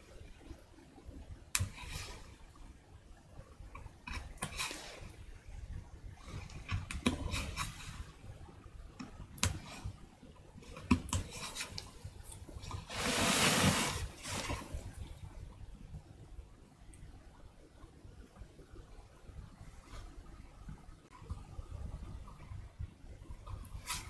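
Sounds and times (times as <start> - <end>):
hand brushing across woodblock: 12.9 - 14.8.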